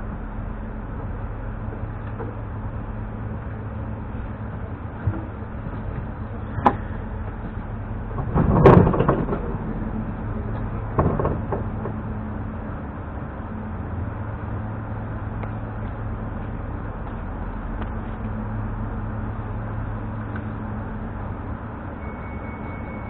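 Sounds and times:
electric train hum: 0.0s - 23.0s
clatter: 8.1s - 12.0s.

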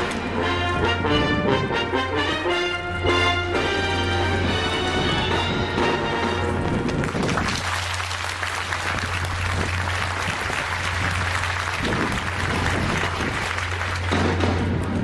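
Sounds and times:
background music: 0.0s - 6.7s
rushing outdoor noise: 0.0s - 15.0s.

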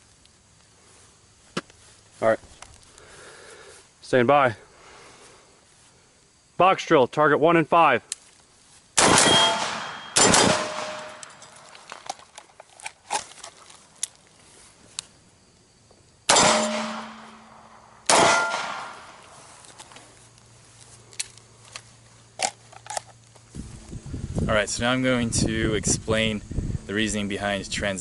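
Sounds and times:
pistol shots: 9.0s - 11.3s, 16.3s - 19.2s
rifle shots: 9.0s - 11.3s, 16.3s - 19.2s
gun handling clicks: 9.6s - 14.3s, 18.0s - 23.4s.

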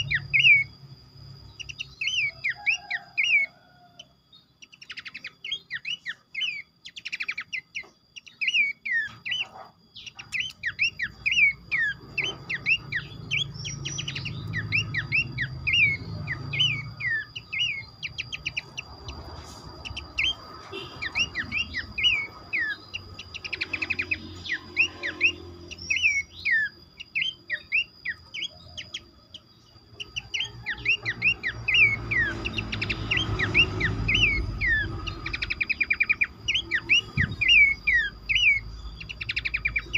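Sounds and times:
birds whistling and chattering: 0.0s - 39.9s
steady high tone: 10.2s - 39.9s.

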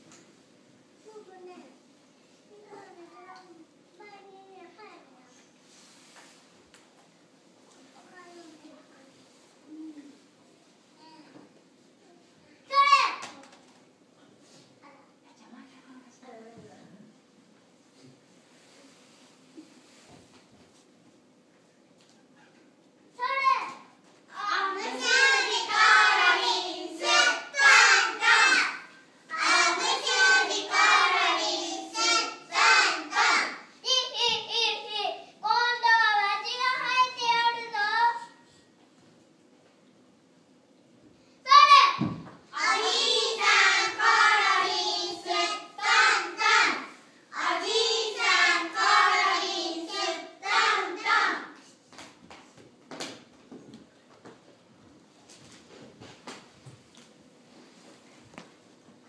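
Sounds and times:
children singing together: 24.4s - 33.7s, 42.5s - 51.6s.

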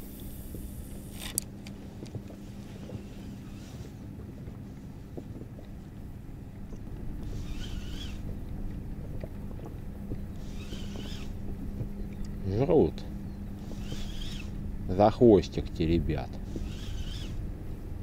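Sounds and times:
faint hum: 0.0s - 18.0s
low steady rumble: 0.0s - 18.0s
fishing reel bail clicking shut: 1.1s - 1.8s.

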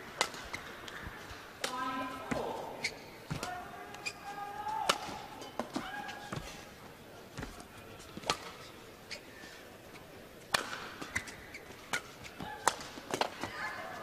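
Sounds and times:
rackets hitting shuttlecock: 0.2s - 1.0s, 4.8s - 5.9s, 8.2s - 8.6s, 10.5s - 13.5s
shoes squeaking on court: 0.2s - 1.3s, 2.3s - 4.4s, 5.4s - 10.2s, 10.8s - 14.0s.

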